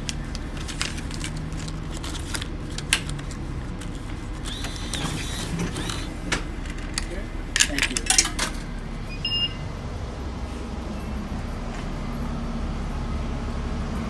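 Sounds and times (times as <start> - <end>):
bill validator motor whirring: 0.0 - 7.0
bus hum: 0.0 - 14.0.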